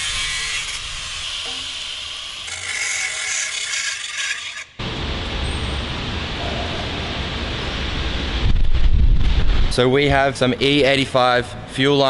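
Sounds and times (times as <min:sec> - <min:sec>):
angle grinder cutting metal: 0:00.0 - 0:04.8
low rumbling noise: 0:04.8 - 0:11.8.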